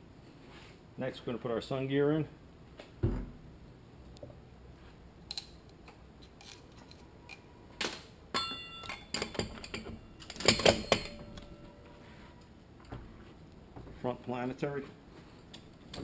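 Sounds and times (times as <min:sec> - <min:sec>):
metal parts clanking: 0:06.4 - 0:11.8
metal ringing ping: 0:08.4 - 0:09.2.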